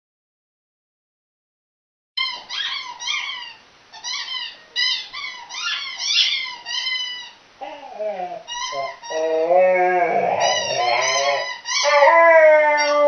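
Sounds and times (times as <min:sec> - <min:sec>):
squeaky toy squeaking: 0:02.2 - 0:07.4, 0:08.5 - 0:09.4, 0:10.4 - 0:12.1
dog whining: 0:02.2 - 0:13.0.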